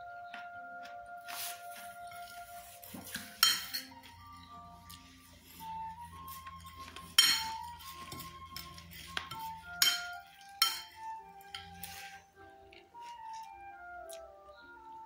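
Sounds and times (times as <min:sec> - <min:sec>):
soft background music: 0:00.0 - 0:15.0
cutlery clinking against dishes: 0:02.9 - 0:04.2, 0:06.3 - 0:12.2.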